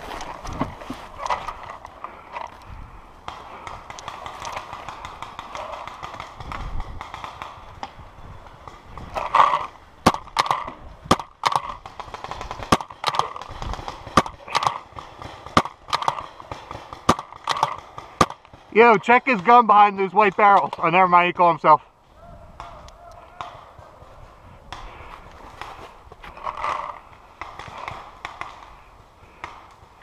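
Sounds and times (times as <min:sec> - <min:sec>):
shuffling and handling noise: 0:00.0 - 0:02.7, 0:24.3 - 0:27.1.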